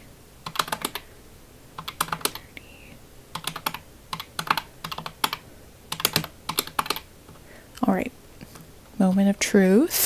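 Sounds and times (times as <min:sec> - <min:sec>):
calculator keys clicking: 0:00.5 - 0:01.0, 0:01.8 - 0:02.4, 0:03.4 - 0:07.1.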